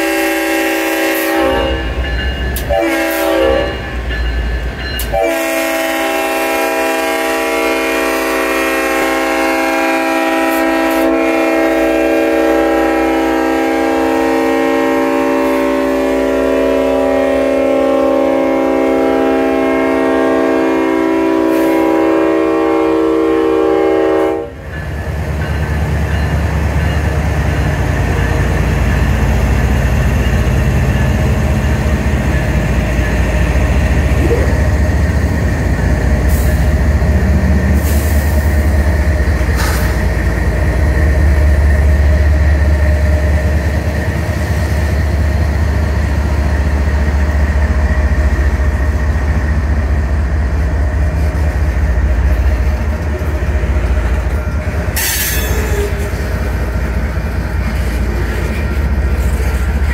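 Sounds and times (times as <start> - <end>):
locomotive air horn blasts: 0.0 - 3.9, 5.1 - 24.6, 54.9 - 56.2
train wheels clattering on rails: 1.0 - 6.8, 24.5 - 59.9.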